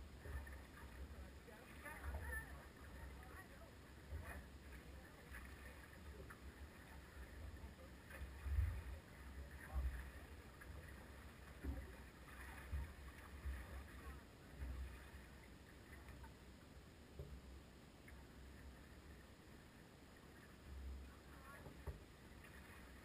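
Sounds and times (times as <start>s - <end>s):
soft thumps on boat: 11.5s - 13.8s, 17.1s - 17.5s, 21.5s - 22.2s.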